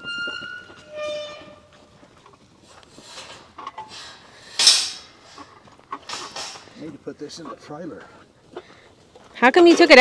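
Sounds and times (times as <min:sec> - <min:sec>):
cart scraping to a stop: 0:00.0 - 0:08.0
cart rattling over rocky dirt: 0:00.0 - 0:10.0.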